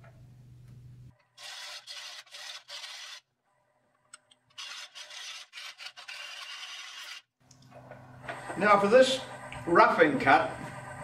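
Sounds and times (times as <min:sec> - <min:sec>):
lathe gouge scraping wood: 0:01.4 - 0:03.2, 0:04.6 - 0:07.2.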